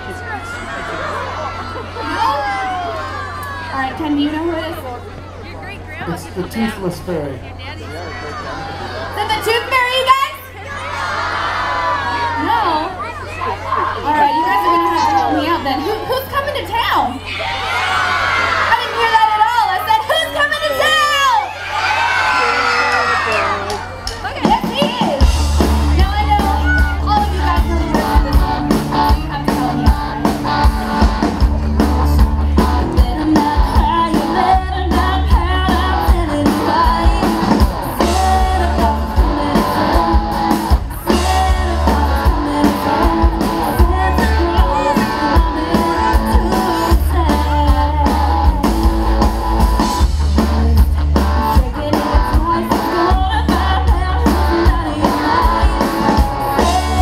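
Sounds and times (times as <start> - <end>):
drums: 0.0 - 57.0
electric guitar: 24.1 - 57.0
person singing into microphone: 41.1 - 49.0, 50.5 - 57.0.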